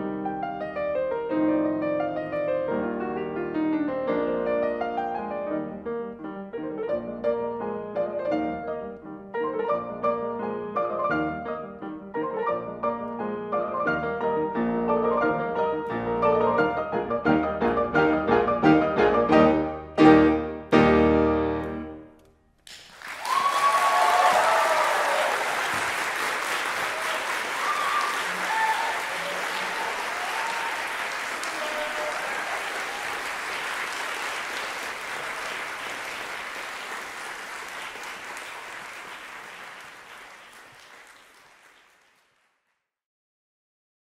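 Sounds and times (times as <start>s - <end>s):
piano chords: 0.0s - 22.2s
audience applauding: 22.7s - 42.7s
audience cheering: 22.9s - 41.4s.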